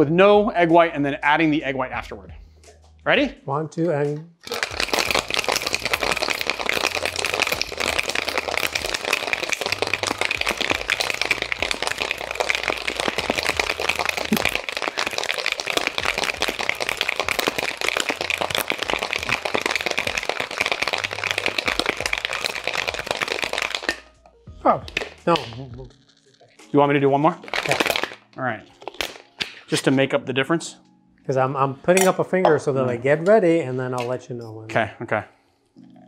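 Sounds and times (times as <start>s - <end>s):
ice rattling in cocktail shaker: 4.4s - 24.1s, 24.9s - 26.7s, 27.4s - 29.2s.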